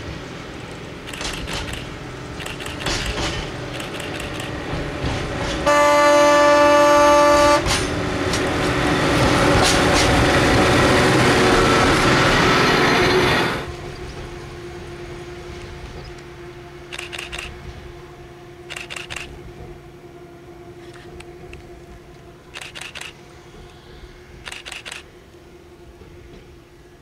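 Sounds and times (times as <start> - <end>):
wheels clicking over rail joints: 0.0 - 6.0, 7.3 - 10.8
diesel railcar engine: 0.0 - 27.0.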